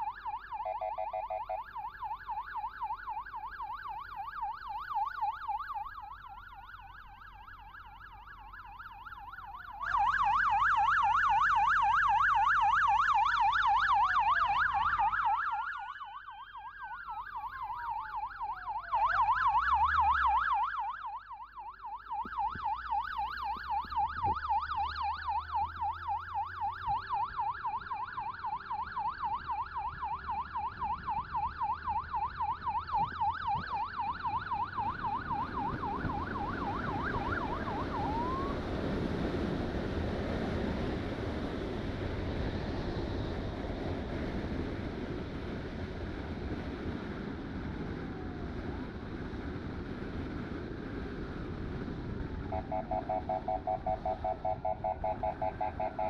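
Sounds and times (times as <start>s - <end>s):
siren fast yelp: 0.0s - 38.6s, 52.5s - 56.0s
siren slow wail: 0.0s - 56.0s.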